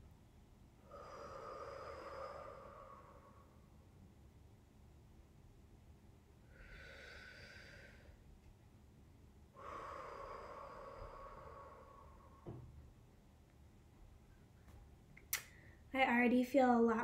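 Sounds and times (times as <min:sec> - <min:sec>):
woman breathing deeply: 0:00.8 - 0:03.8, 0:06.4 - 0:08.3, 0:09.5 - 0:12.9.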